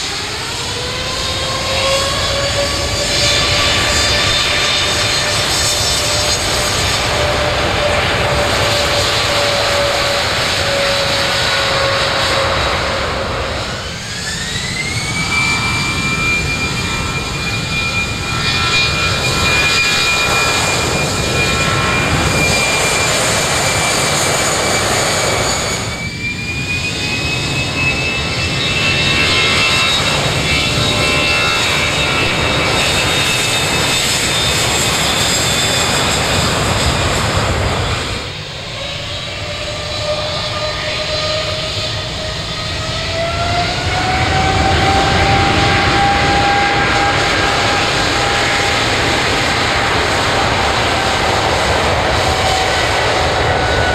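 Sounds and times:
jet roar with fan whine: 0.0 - 53.9.

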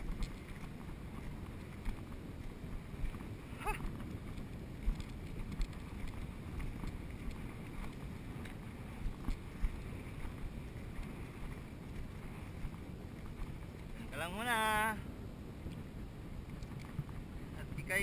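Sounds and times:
feet wading through water: 0.0 - 14.1
wind buffeting microphone: 0.0 - 18.0.

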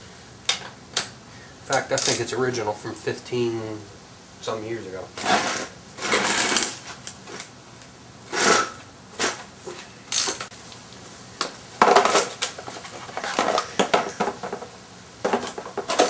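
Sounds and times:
metal tools clinking: 1.8 - 2.3, 10.1 - 10.5.

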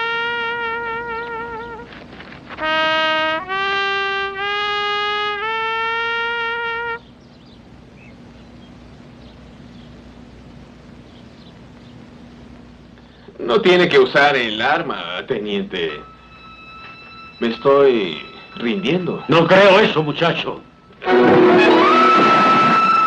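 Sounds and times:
solo trumpet playing: 0.0 - 1.9, 2.5 - 7.1, 15.9 - 23.0
faint steady hum: 0.0 - 23.0.

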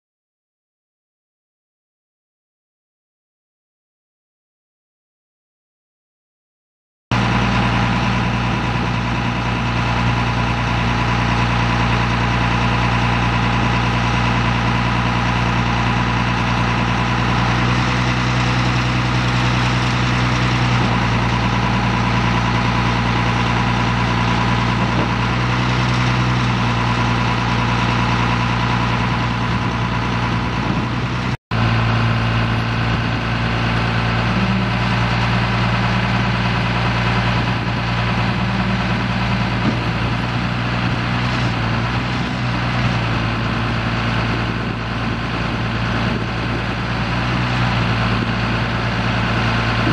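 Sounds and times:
diesel engine idling: 7.1 - 49.9.

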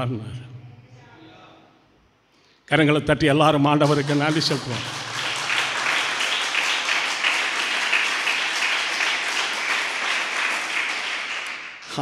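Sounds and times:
congregation clapping: 3.8 - 12.0.

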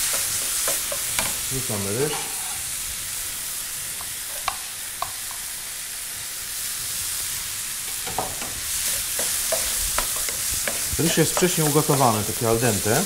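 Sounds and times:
food sizzling in a frying pan: 0.0 - 13.0
knocks and scrapes of stirring: 8.1 - 11.9.

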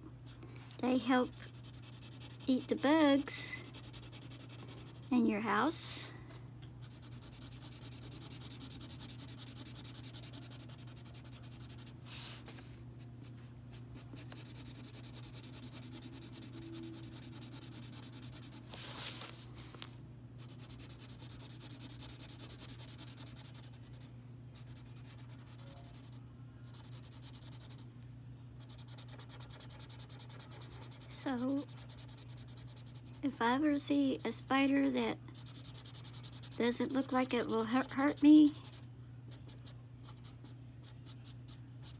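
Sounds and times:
steady low hum: 0.0 - 41.9
marker scratching on paper: 0.9 - 5.3, 6.8 - 12.4, 14.0 - 19.4, 20.4 - 27.8, 28.6 - 33.2, 35.4 - 41.9.

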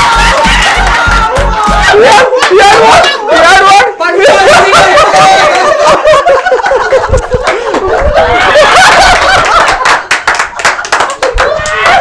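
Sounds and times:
men laughing: 0.5 - 10.1.

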